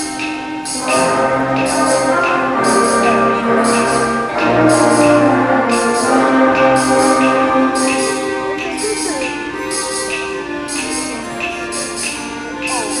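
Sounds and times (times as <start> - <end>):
bright high percussion stroke: 0.0 - 13.0
concert band brass and woodwind chords: 0.0 - 13.0.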